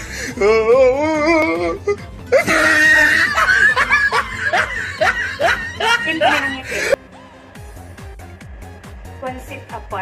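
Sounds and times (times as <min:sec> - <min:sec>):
music playing: 0:00.0 - 0:10.0
woman laughing: 0:02.3 - 0:07.0.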